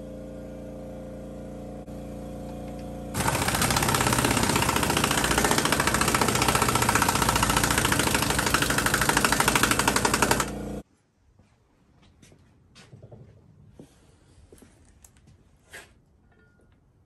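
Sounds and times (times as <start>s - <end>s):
machine hammering rattle: 3.2s - 10.8s.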